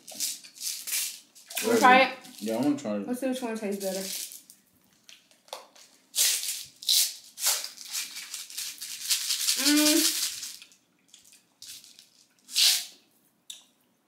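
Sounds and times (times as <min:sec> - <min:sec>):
candy rattling in plastic container: 0:03.7 - 0:04.5, 0:06.2 - 0:12.2
person humming: 0:09.6 - 0:10.0.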